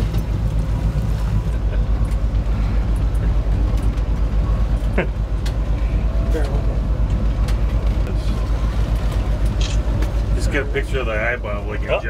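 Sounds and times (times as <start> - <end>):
boat engine throbbing: 0.0 - 12.0.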